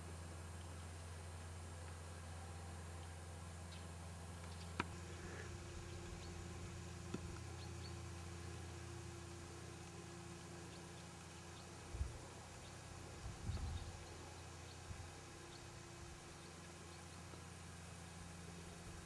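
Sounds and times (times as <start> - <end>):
faint low hum: 0.0 - 19.0
small birds chirping: 2.9 - 8.9, 9.5 - 19.0
wind buffeting microphone: 13.2 - 13.9.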